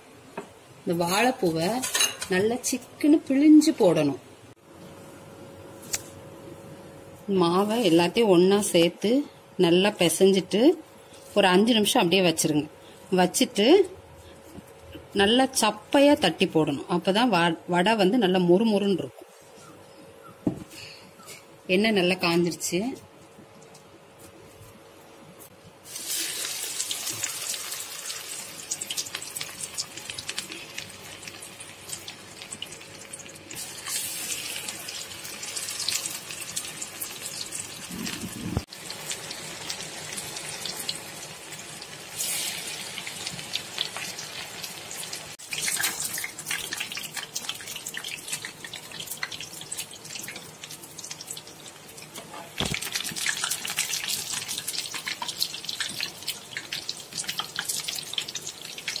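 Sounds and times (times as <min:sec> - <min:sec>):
deep-frying sizzling crackle: 0:25.8 - 0:59.0.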